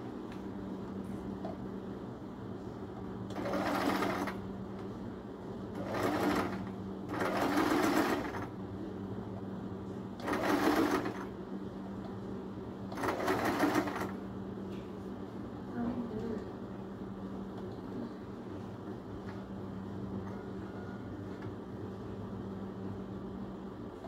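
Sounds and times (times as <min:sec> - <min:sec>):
steady low hum: 0:00.0 - 0:24.0
sewing machine stitching: 0:03.3 - 0:04.4, 0:05.8 - 0:08.5, 0:10.2 - 0:11.3, 0:12.9 - 0:14.2.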